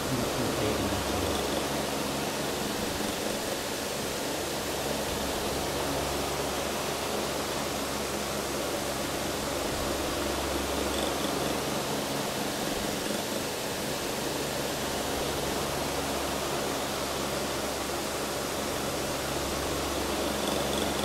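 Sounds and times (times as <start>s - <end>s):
steady hiss: 0.0s - 15.3s
low electrical hum: 0.0s - 21.0s.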